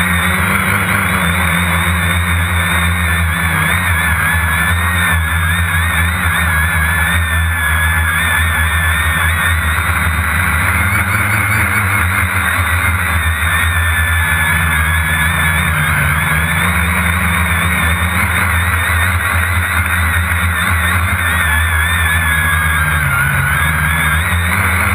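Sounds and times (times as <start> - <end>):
drone motors and propellers whining: 0.0 - 24.9.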